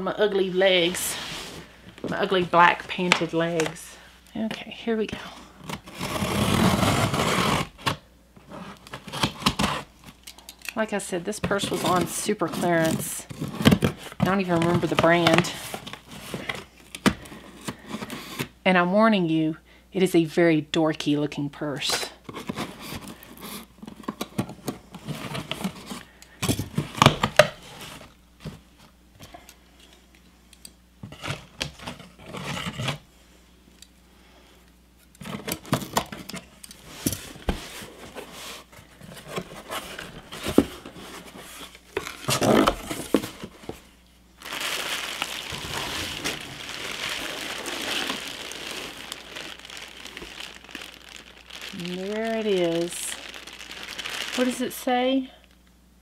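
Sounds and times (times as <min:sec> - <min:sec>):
packing tape tearing: 0:05.6 - 0:10.8, 0:35.2 - 0:43.8, 0:44.4 - 0:54.9
plastic bag crinkling: 0:11.4 - 0:18.2, 0:38.9 - 0:55.6.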